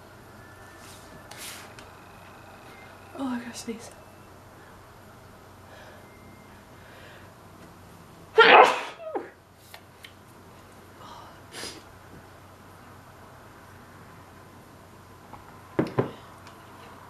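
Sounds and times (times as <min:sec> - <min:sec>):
woman sneezing: 0:08.4 - 0:09.3.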